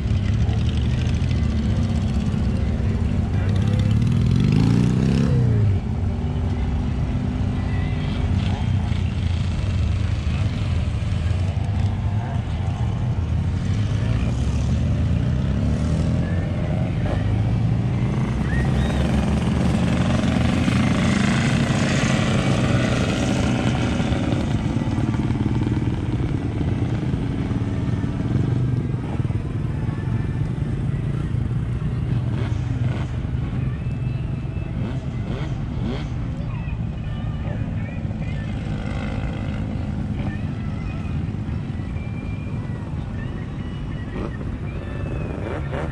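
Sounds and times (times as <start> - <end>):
motorcycle engine running: 0.0 - 45.9.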